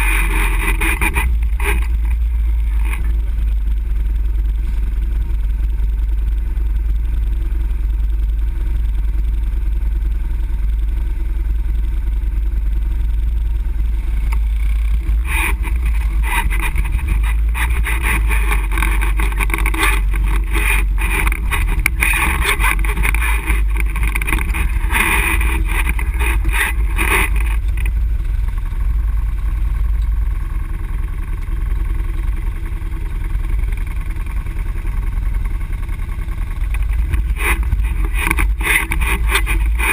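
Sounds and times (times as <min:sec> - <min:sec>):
atv engine running: 0:00.0 - 0:39.9
knocks and rattles: 0:14.3 - 0:28.0, 0:36.7 - 0:39.9.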